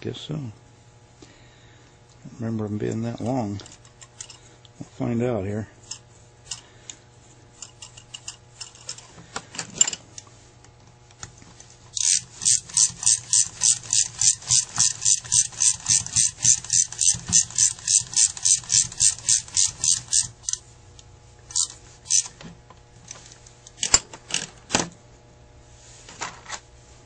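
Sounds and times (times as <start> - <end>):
carburetor parts clicking and knocking: 12.0 - 20.6
ratcheting screwdriver clicking: 12.0 - 20.6, 21.5 - 22.4.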